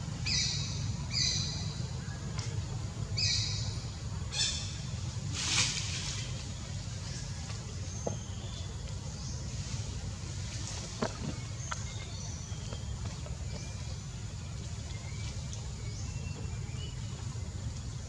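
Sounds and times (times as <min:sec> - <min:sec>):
steady low hum: 0:00.0 - 0:18.0
brief hiss: 0:05.3 - 0:06.3.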